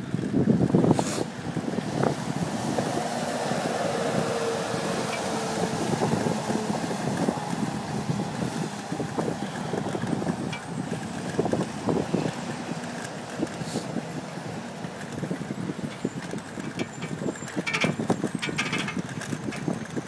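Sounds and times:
bicycle rattling: 0:00.0 - 0:20.0
wind on microphone: 0:00.0 - 0:20.0
sharp rattling clicks: 0:14.8 - 0:20.0.

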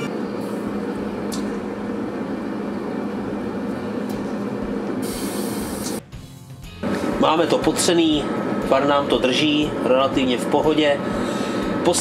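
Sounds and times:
grill fan whirring: 0:00.0 - 0:12.0
bright hiss: 0:05.0 - 0:06.0
click: 0:05.8 - 0:06.0.

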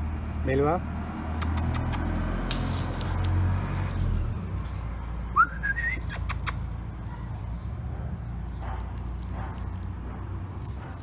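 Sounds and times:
person whistling: 0:05.4 - 0:06.2.

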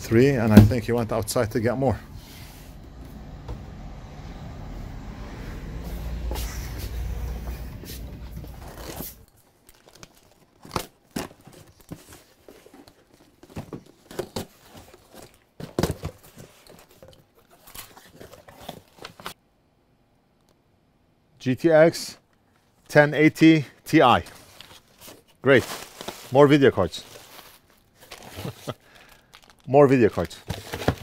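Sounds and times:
low vehicle rumble: 0:02.0 - 0:08.6.

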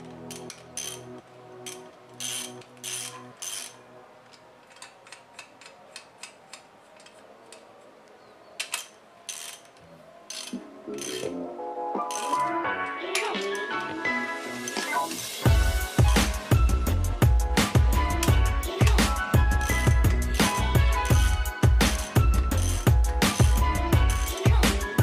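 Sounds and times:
ratchet wrench clicking: 0:00.2 - 0:03.8, 0:04.6 - 0:07.6, 0:08.6 - 0:11.4, 0:12.1 - 0:12.5, 0:18.1 - 0:25.0.

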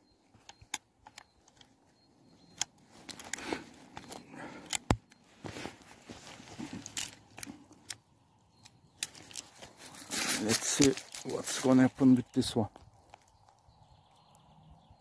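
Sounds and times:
hands and clothing rustling: 0:00.3 - 0:04.6, 0:05.2 - 0:07.9, 0:09.0 - 0:13.4.

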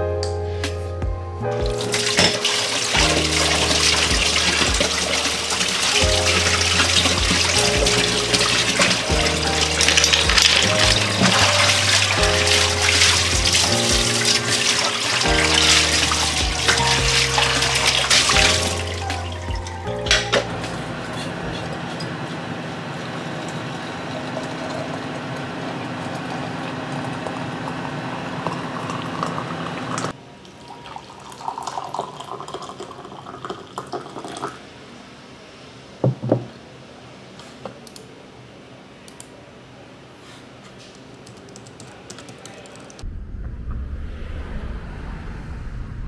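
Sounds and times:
water running into sink: 0:01.8 - 0:20.7
tea pouring into mug: 0:02.0 - 0:19.4, 0:30.6 - 0:34.6.

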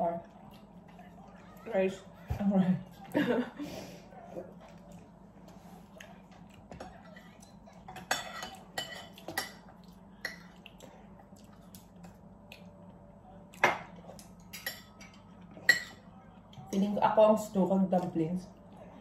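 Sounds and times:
utensils clinking against bowls: 0:06.8 - 0:10.5.

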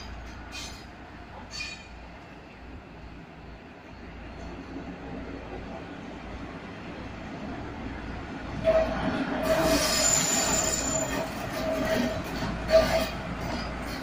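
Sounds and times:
train wheels squealing on rails: 0:00.0 - 0:02.6, 0:08.5 - 0:14.0.

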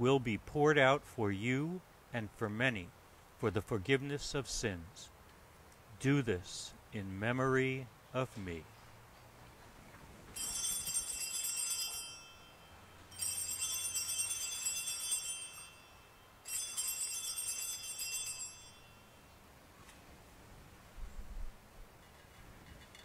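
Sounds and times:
altar bells jingling: 0:10.4 - 0:19.2.

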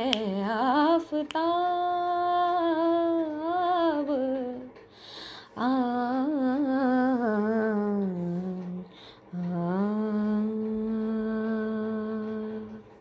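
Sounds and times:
woman singing wordless melody: 0:00.0 - 0:13.0
woman breathing: 0:04.9 - 0:05.6, 0:08.9 - 0:09.3.

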